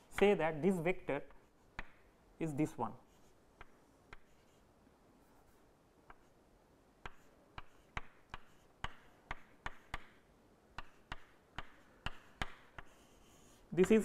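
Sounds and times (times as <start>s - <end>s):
chalk tapping on chalkboard: 1.3s - 2.0s, 3.1s - 4.6s, 7.0s - 14.0s.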